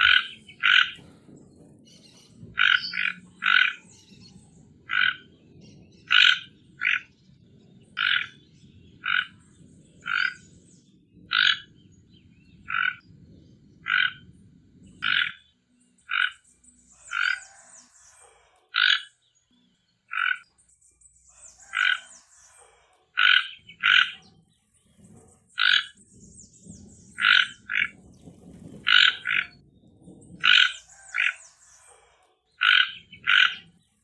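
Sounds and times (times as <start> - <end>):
toucan croaking call: 0.0 - 1.0, 2.5 - 4.0, 4.9 - 5.4, 6.0 - 7.1, 8.0 - 8.4, 9.0 - 9.4, 10.0 - 10.4, 11.3 - 11.8, 12.7 - 13.0, 13.8 - 14.3, 15.0 - 15.5, 16.1 - 16.4, 17.0 - 17.6, 18.2 - 19.2, 20.1 - 20.5, 21.4 - 24.3, 25.6 - 26.0, 27.1 - 28.0, 28.8 - 29.6, 30.4 - 32.0, 32.6 - 33.8
faint high-pitched chirping: 0.0 - 34.0.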